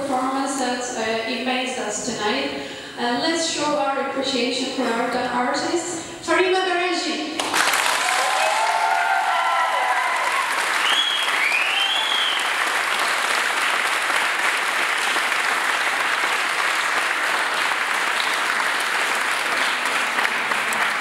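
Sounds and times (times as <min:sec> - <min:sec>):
audience applauding: 0:07.4 - 0:21.0
high calls from crowd: 0:08.1 - 0:12.5.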